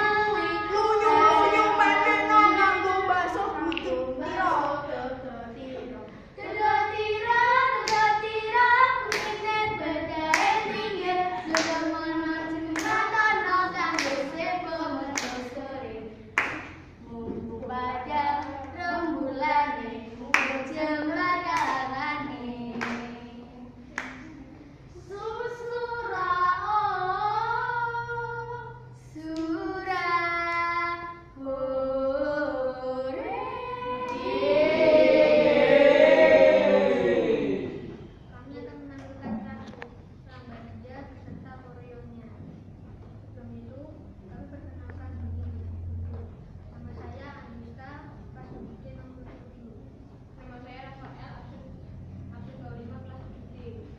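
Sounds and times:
children singing in unison: 0.1s - 4.8s, 33.2s - 38.1s
hand claps: 10.3s - 10.8s, 11.4s - 11.9s, 12.7s - 13.1s, 16.4s - 16.8s, 20.3s - 20.7s, 22.7s - 23.1s, 24.0s - 24.4s.

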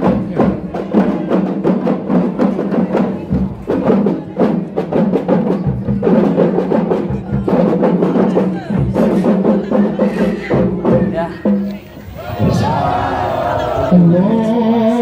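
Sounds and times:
music with rapid dense drums: 0.0s - 11.6s.

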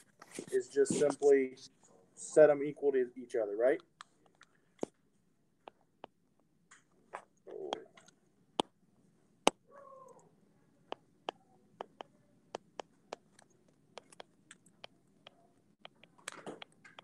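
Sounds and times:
stylus tapping on glass screen: 10.9s - 13.4s, 14.0s - 17.0s.

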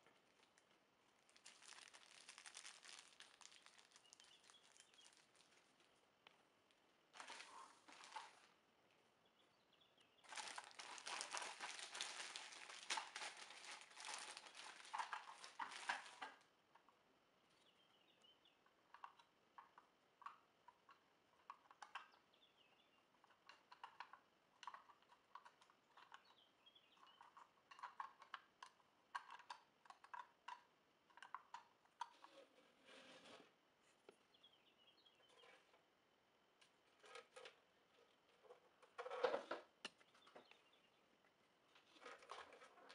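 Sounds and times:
plastic bag crinkling: 0.0s - 6.0s, 7.2s - 8.5s, 10.2s - 16.4s.

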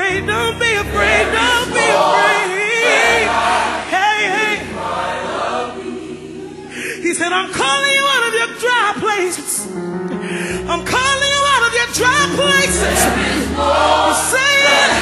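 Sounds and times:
voices singing in harmony: 0.3s - 7.3s, 11.5s - 15.0s.

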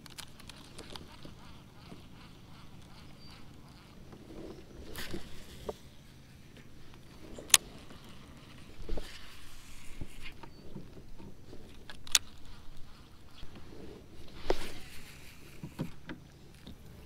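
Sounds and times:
small ticks of fishing reel: 0.0s - 5.9s, 6.9s - 13.6s
sharp clicks: 11.7s - 13.5s.

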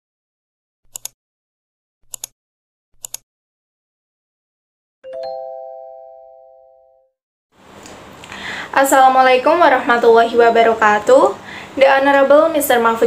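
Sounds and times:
bell-like chime: 5.1s - 7.1s.

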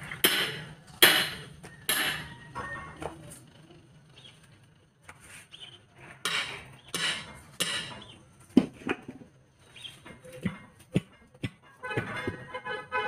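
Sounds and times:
sharp metal knocks: 0.1s - 2.4s, 6.2s - 9.0s.

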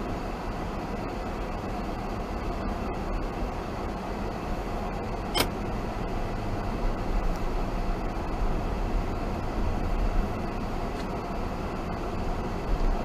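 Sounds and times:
car engine and tyres rumbling: 0.0s - 13.0s
sharp click: 5.3s - 5.5s.

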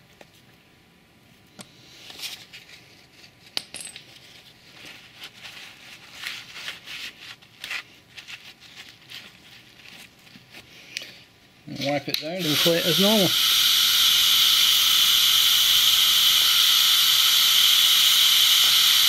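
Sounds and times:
handling rustles and scuffs: 2.0s - 11.0s.

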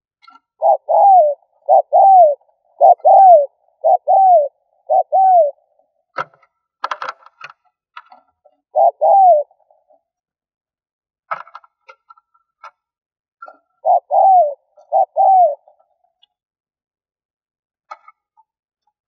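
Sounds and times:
dove cooing: 0.6s - 5.8s, 8.7s - 9.8s, 13.8s - 16.0s.

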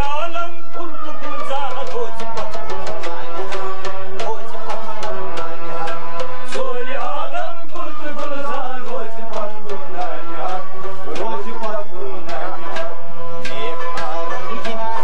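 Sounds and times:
harmonium chords: 0.0s - 15.0s
man singing: 0.0s - 15.0s
plucked rabab: 0.0s - 15.0s
tabla beat: 0.0s - 15.0s.

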